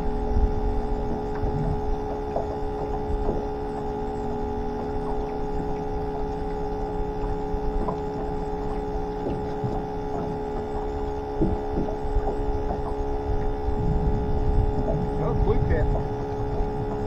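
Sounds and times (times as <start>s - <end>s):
pump whining: 0.0s - 17.0s
faint knocks: 11.4s - 13.5s.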